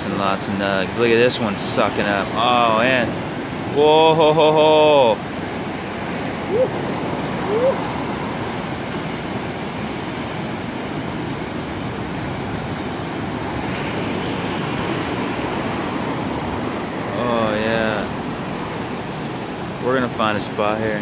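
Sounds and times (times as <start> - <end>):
surf breaking and rushing: 0.0 - 21.0
person whooping: 6.4 - 7.9.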